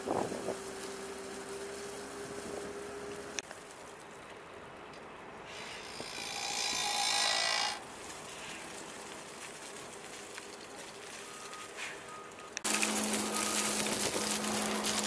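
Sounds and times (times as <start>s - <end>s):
wood chips pouring onto pile: 12.6s - 15.0s.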